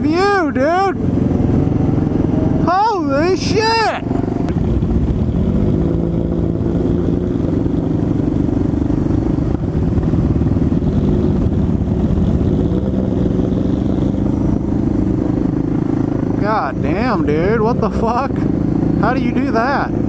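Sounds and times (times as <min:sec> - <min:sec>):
motorcycle engine cruising: 0:00.0 - 0:20.0
wind rush: 0:00.9 - 0:16.8.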